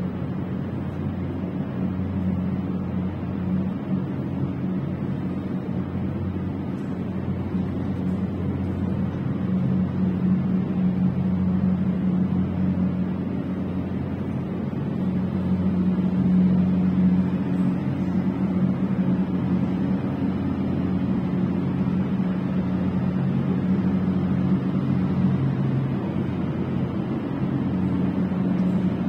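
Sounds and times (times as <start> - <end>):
low machine drone: 0.0 - 29.0.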